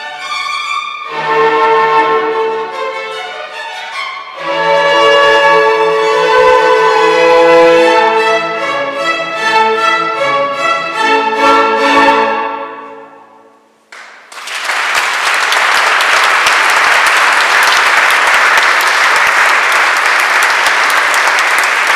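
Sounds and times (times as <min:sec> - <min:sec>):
string orchestra with horns: 0:00.0 - 0:13.2
audience applause: 0:14.0 - 0:21.9.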